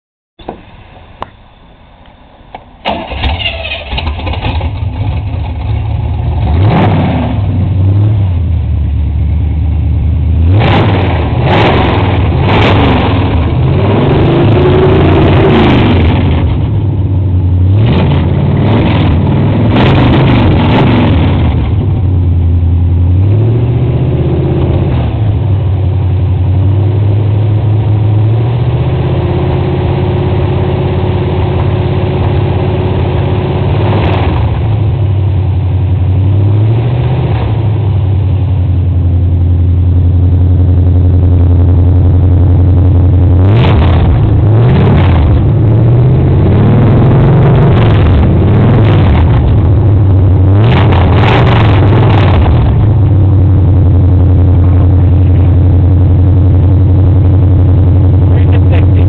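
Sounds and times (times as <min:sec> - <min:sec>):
car engine starting and revving: 0:02.8 - 0:59.0.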